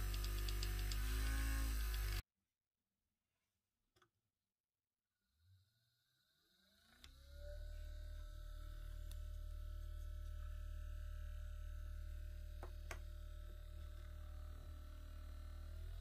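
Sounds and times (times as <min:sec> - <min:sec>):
electric motor whining: 0:00.0 - 0:02.2.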